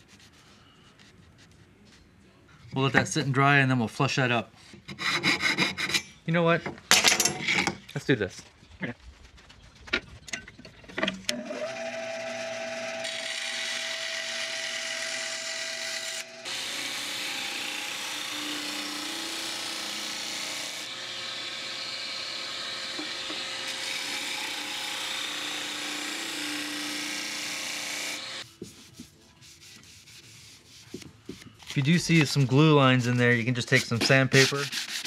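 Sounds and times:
bandsaw cutting wood: 0:11.3 - 0:28.4
disc sander running: 0:11.3 - 0:28.4.

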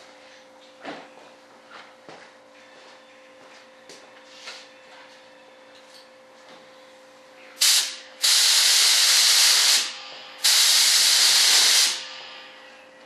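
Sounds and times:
air spray gun hissing: 0:07.6 - 0:12.2.

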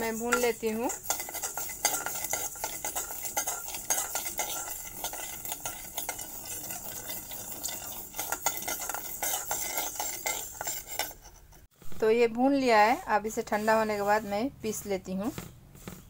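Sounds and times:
seeds rattling in pan: 0:00.0 - 0:11.2
metal spoon scraping pan: 0:00.0 - 0:11.7, 0:12.7 - 0:16.0.

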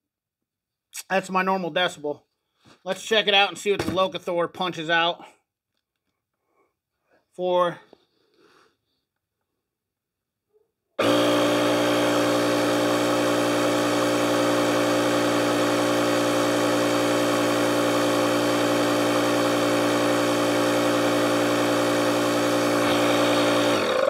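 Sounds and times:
air compressor humming: 0:11.0 - 0:24.0.

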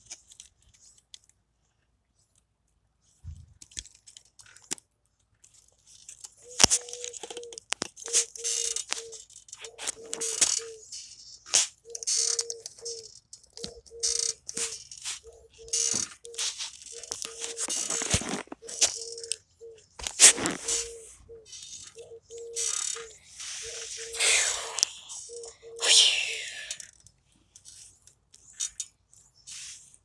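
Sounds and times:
plastic pieces clicking and rattling: 0:03.6 - 0:19.4, 0:22.6 - 0:23.2, 0:26.6 - 0:29.3.

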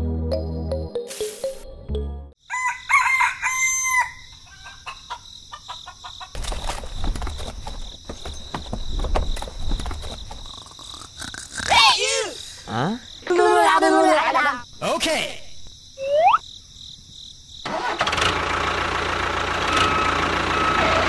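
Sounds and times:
rooster crowing: 0:02.4 - 0:06.3.

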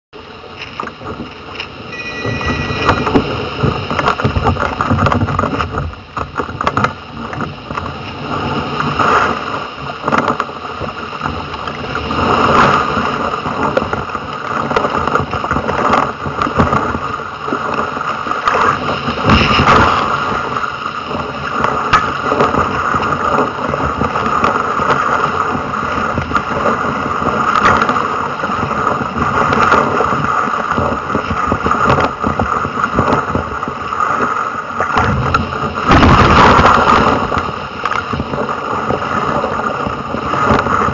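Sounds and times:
paddle and wave splashes: 0:00.2 - 0:40.9
water rushing and splashing: 0:00.2 - 0:40.9
wind buffeting microphone: 0:00.2 - 0:40.9.

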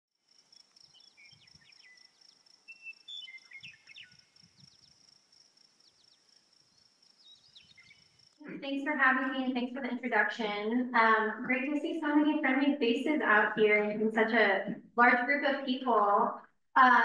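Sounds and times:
insect-like trill: 0:00.2 - 0:08.5
short bird chirps: 0:00.5 - 0:05.1, 0:05.8 - 0:08.3.

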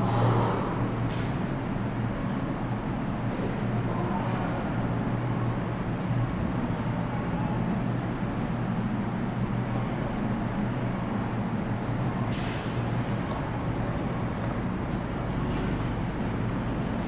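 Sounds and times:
constant background noise: 0:00.0 - 0:17.0
low mechanical hum: 0:00.0 - 0:17.0.

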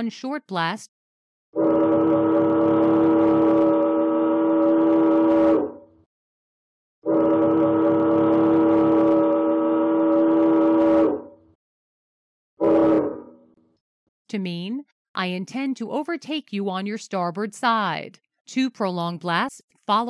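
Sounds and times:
ship's whistle blasts: 0:01.6 - 0:05.8, 0:07.1 - 0:11.3, 0:12.6 - 0:13.2.

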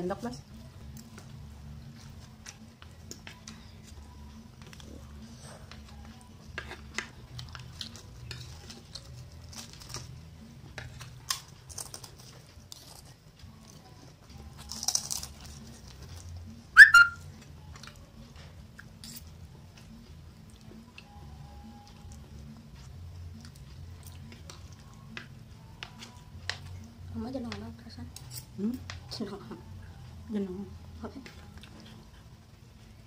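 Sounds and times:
chewing and smacking: 0:02.0 - 0:16.5, 0:17.3 - 0:21.2, 0:21.8 - 0:26.9, 0:31.2 - 0:32.3.

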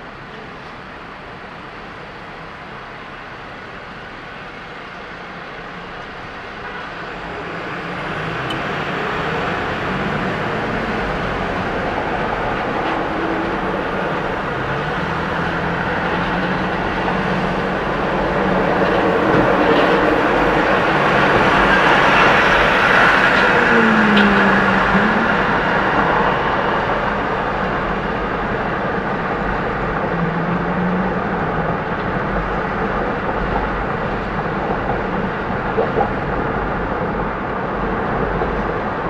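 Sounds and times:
car road noise accelerating: 0:05.6 - 0:39.0
short low tone: 0:18.6 - 0:26.4.

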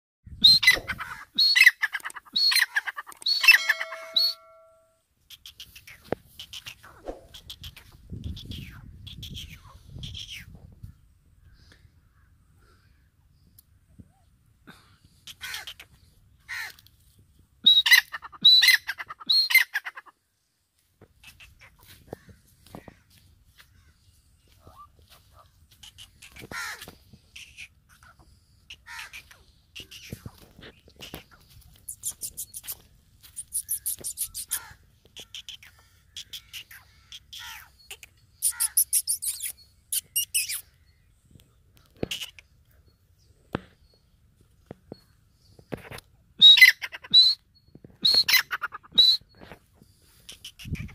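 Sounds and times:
francolin calling: 0:00.4 - 0:10.3, 0:31.2 - 0:41.1.

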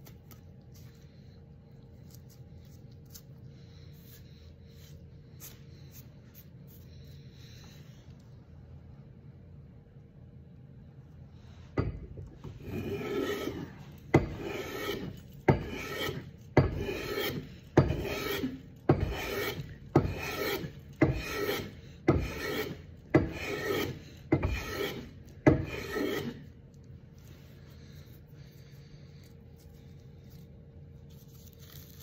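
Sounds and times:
hand plane shaving wood: 0:12.5 - 0:26.4.

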